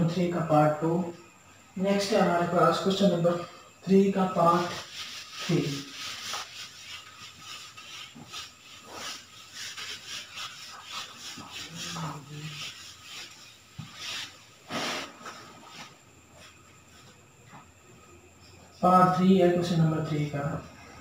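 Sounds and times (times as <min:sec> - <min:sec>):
duster rubbing whiteboard: 0:02.2 - 0:17.1.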